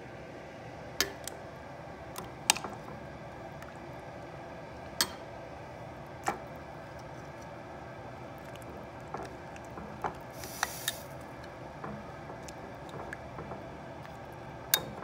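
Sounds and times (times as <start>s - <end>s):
faint steady hiss: 10.3s - 11.2s
metal tongs clicking on pot: 14.7s - 15.0s.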